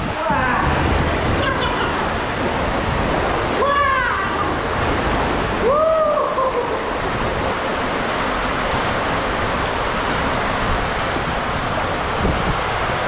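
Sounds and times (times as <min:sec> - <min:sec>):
water rushing in waterslide tube: 0:00.0 - 0:13.0
person whooping: 0:05.6 - 0:06.9.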